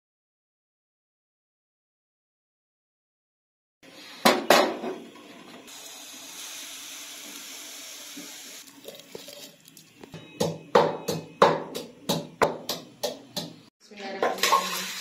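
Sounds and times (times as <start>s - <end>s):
pestle pounding in wooden mortar: 10.2s - 13.7s.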